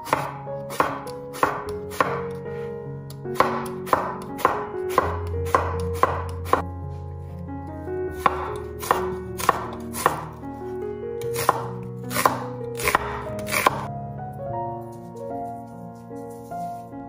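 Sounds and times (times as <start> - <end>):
knife chopping on wooden board: 0.0 - 2.3, 3.3 - 6.6, 8.2 - 10.4, 11.2 - 13.9.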